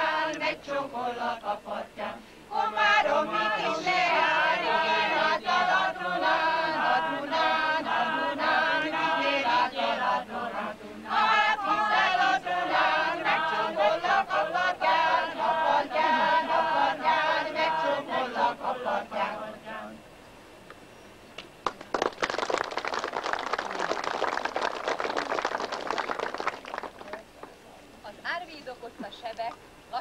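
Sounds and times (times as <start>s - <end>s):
group of voices singing: 0.0s - 20.0s
applause: 21.6s - 27.6s.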